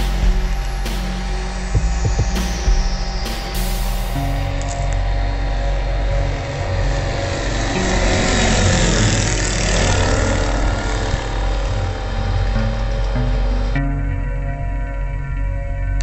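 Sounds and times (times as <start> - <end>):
ultralight aircraft engine and propeller: 4.6 - 13.7.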